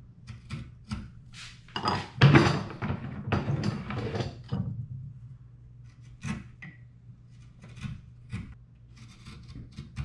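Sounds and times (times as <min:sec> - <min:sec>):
chisel scraping wood: 0:07.3 - 0:10.0.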